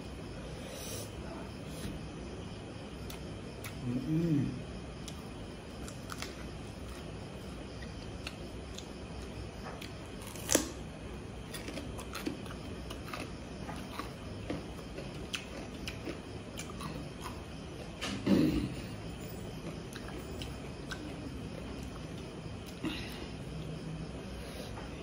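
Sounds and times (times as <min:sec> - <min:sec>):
quiet chewing: 0:05.0 - 0:23.8.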